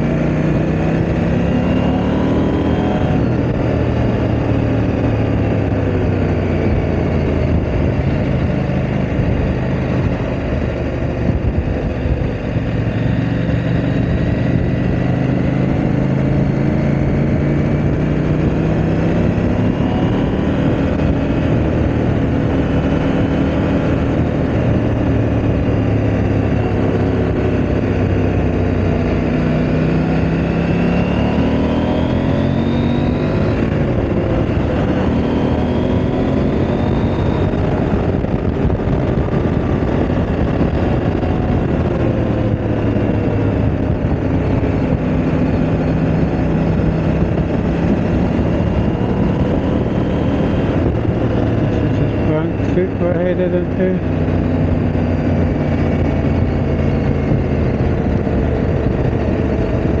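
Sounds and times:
motorcycle engine revving: 0:00.0 - 1:00.0.

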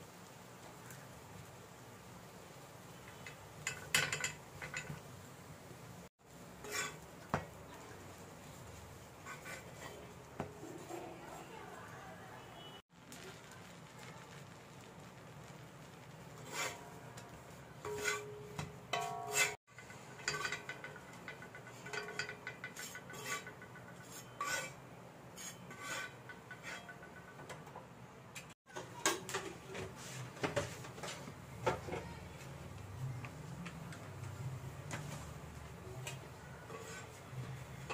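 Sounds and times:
metal spatula scraping iron griddle: 0:06.5 - 0:11.9, 0:16.4 - 0:27.7, 0:34.9 - 0:37.9.

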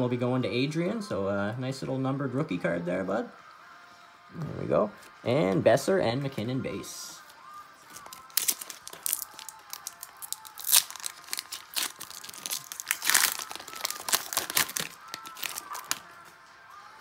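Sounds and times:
foil wrapper crinkling and tearing: 0:07.9 - 0:16.1.

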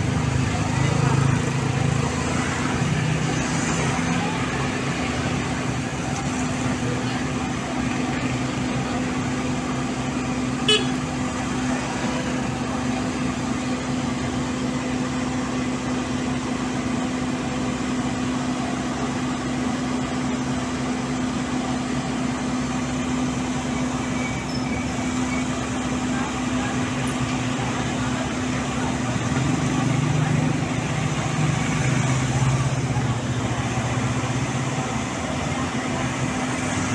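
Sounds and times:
motorcycle engine: 0:00.0 - 0:14.5
diesel engine idling: 0:00.0 - 0:36.9.

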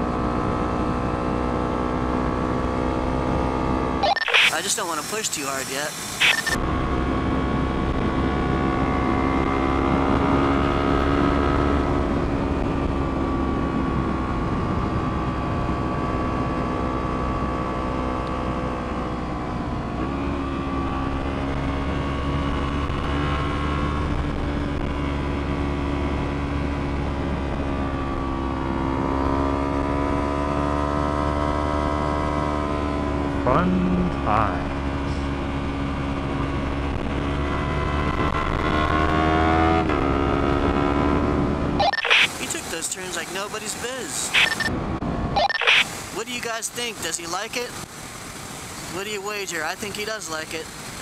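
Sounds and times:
motorcycle engine revving: 0:28.0 - 0:42.6.

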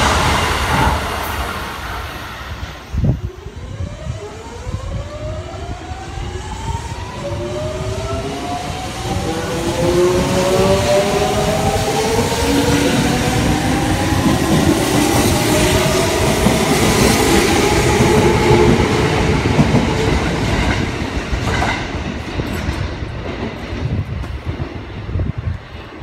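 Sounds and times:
train wheels rumbling and clattering: 0:00.0 - 0:26.0.

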